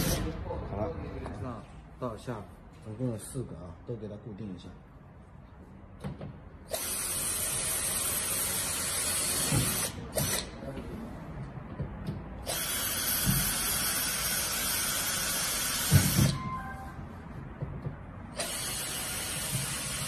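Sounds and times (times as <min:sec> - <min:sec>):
cordless drill drilling metal: 0:00.0 - 0:00.3, 0:06.7 - 0:10.5, 0:12.5 - 0:16.4, 0:18.3 - 0:20.0.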